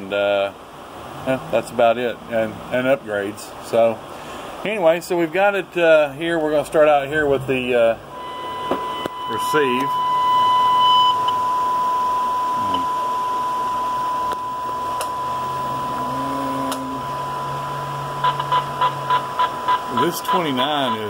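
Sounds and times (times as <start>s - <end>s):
radio hiss: 0.0s - 10.0s, 16.8s - 21.0s
radio test tone: 8.1s - 21.0s.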